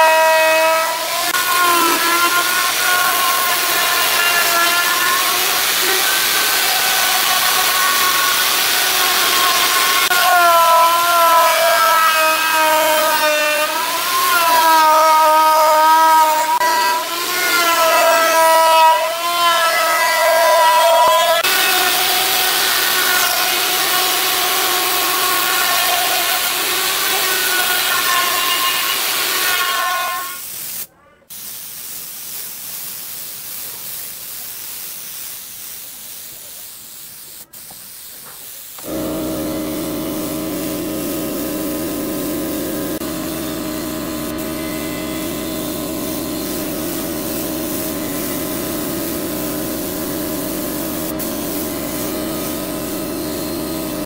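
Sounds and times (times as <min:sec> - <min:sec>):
spray gun hissing: 0:01.0 - 0:10.2, 0:21.4 - 0:54.0
air compressor humming: 0:36.8 - 0:54.0
router whining: 0:38.8 - 0:54.0.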